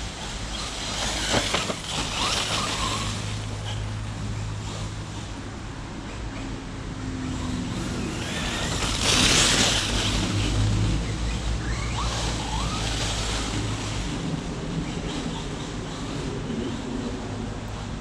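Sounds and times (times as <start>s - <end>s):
tyres scrabbling through leaves: 0.0s - 5.4s, 7.3s - 16.8s
electric motor whining: 7.6s - 14.0s.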